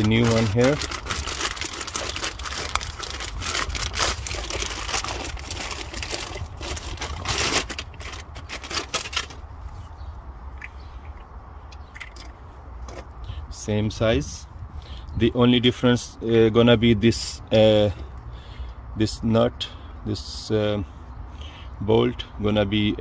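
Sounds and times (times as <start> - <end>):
plastic bag crinkling: 0.0 - 9.4.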